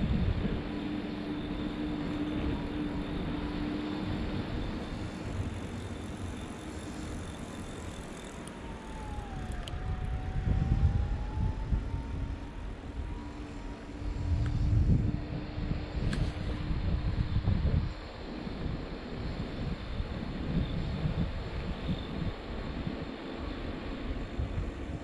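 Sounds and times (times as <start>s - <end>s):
faint whine dipping in pitch: 0.0s - 18.0s
steady hum: 0.0s - 25.0s.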